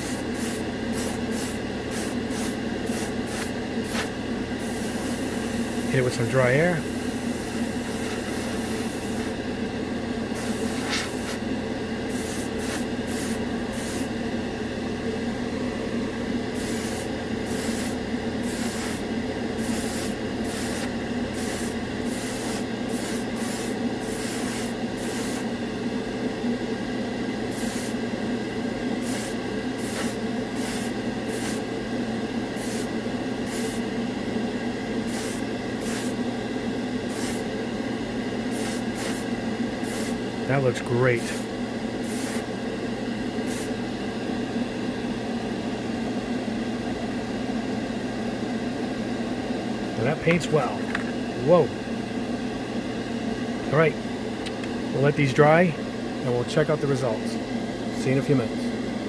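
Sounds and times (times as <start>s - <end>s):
airbrush hissing bursts: 0.0s - 6.0s, 6.8s - 9.4s, 10.3s - 11.4s, 12.1s - 14.1s, 16.6s - 25.5s, 27.5s - 28.0s, 29.0s - 31.6s, 32.6s - 33.9s, 35.1s - 36.2s, 37.1s - 37.5s, 38.5s - 40.2s, 41.2s - 42.5s, 43.4s - 43.7s
spray booth fan whirring: 0.0s - 59.0s.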